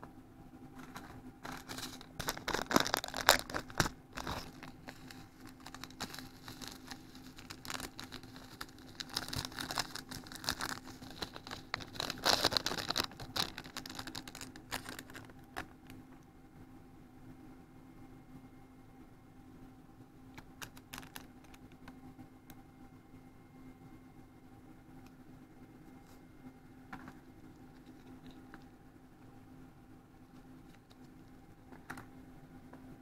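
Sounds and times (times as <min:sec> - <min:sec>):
faint steady hum: 0:00.0 - 0:33.0
plastic sachet crinkling: 0:00.8 - 0:15.8, 0:20.5 - 0:21.9.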